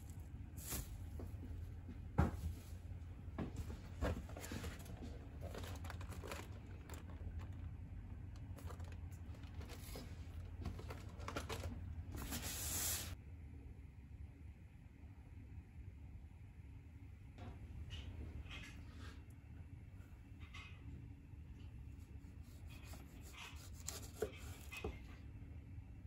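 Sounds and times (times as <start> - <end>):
plastic packaging crinkling: 4.3 - 12.6.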